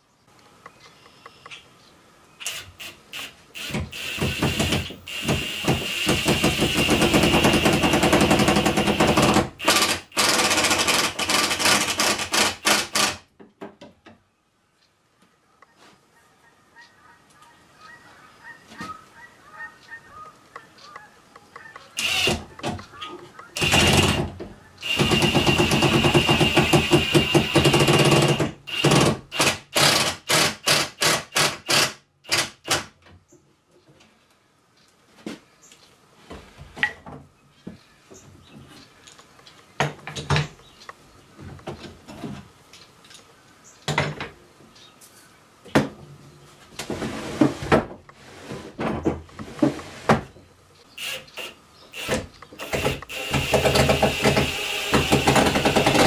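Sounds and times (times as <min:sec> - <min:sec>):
cordless drill running: 0:02.5 - 0:13.1, 0:22.0 - 0:22.4, 0:23.6 - 0:32.4, 0:51.0 - 0:56.0.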